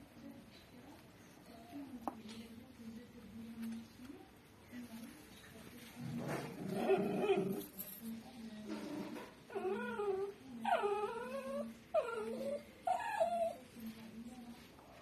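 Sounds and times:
dog growling: 6.3 - 7.7, 9.1 - 13.6.

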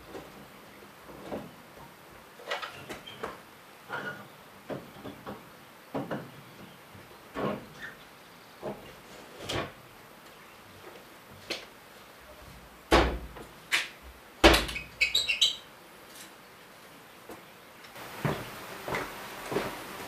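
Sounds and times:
metal stove door knocks and clunks: 12.9 - 13.4.

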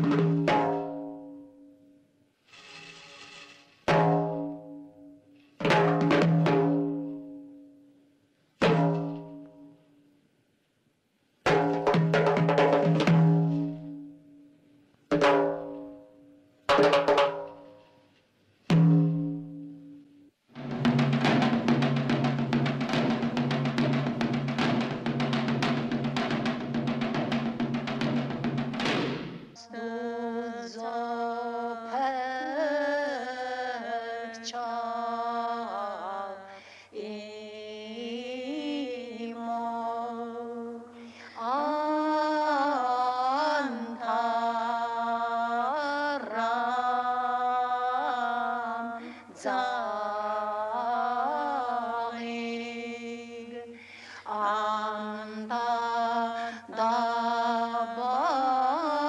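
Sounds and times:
person chanting ornamented singing: 29.6 - 59.0.

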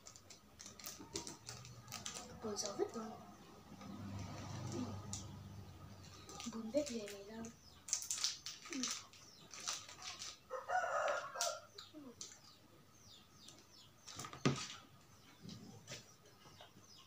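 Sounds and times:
plastic sachets crinkling: 0.0 - 3.1, 6.0 - 11.6.

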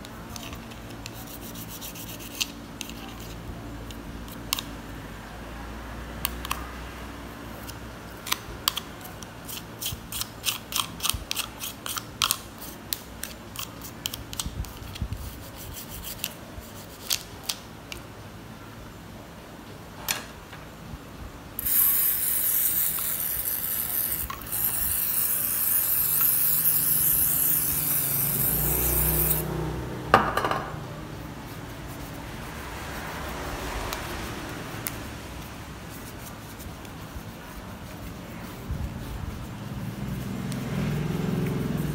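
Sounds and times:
toothbrush scrubbing plastic: 0.3 - 4.7, 7.6 - 17.6, 21.6 - 29.5, 31.2 - 41.9.

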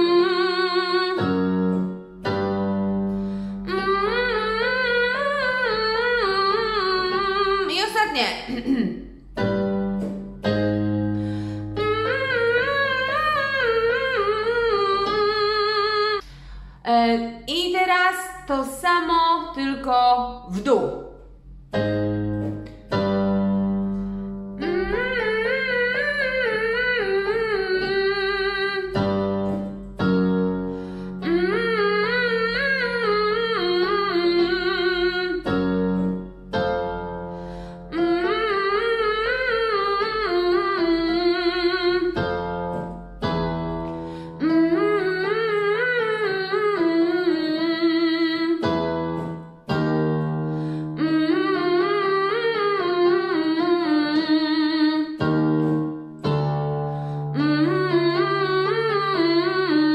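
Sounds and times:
keyboard note: 9.1 - 15.4, 20.6 - 54.3.

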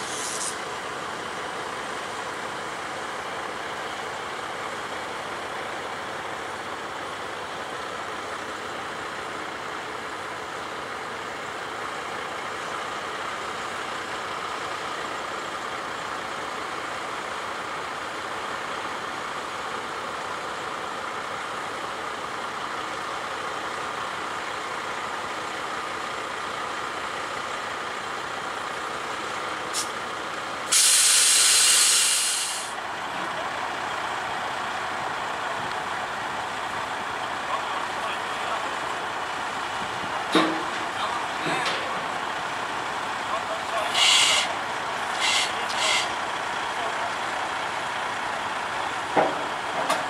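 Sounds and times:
air brakes hissing: 0.0 - 0.6, 29.7 - 30.0, 30.6 - 32.8, 43.9 - 46.2.

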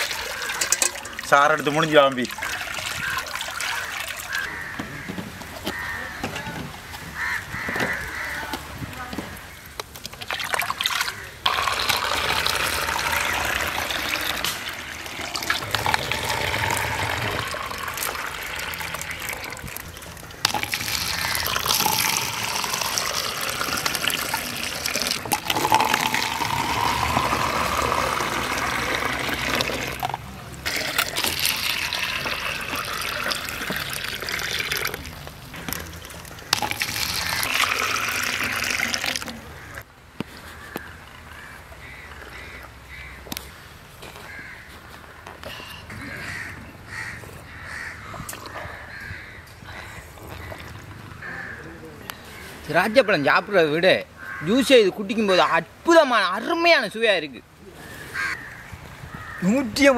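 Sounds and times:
juice pouring into vessel: 0.0 - 4.5, 10.2 - 39.8.

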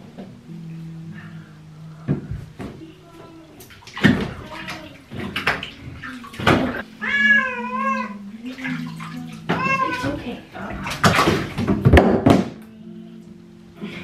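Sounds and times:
bathwater splashing: 2.1 - 12.6
cat meowing: 7.0 - 8.3, 9.5 - 10.3.

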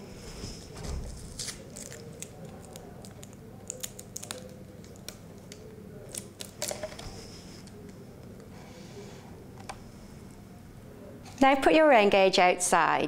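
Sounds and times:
plastic crinkling: 0.6 - 7.2.

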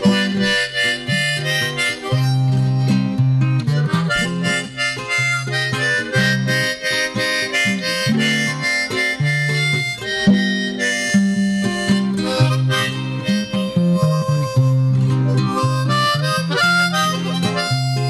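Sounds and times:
harmonica playing chords: 0.0 - 18.0.

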